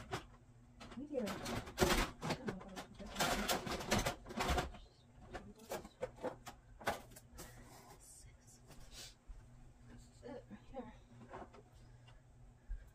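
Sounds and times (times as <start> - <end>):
plastic toys clattering: 0.0 - 7.6.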